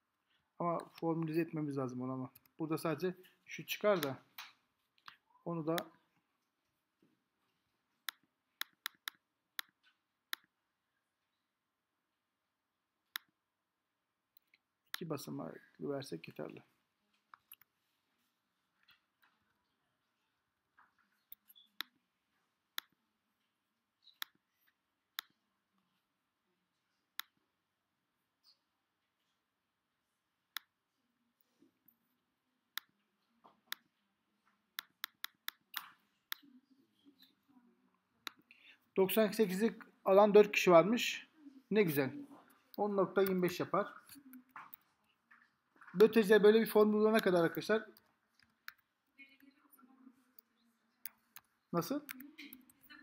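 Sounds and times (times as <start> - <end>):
computer mouse clicking: 8.0 - 10.5, 34.8 - 36.4.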